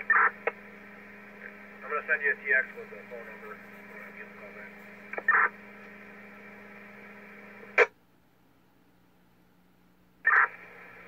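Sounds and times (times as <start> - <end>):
low steady radio tone: 0.0 - 7.9, 10.2 - 11.0
radio carrier hum: 0.0 - 7.9, 10.2 - 11.0.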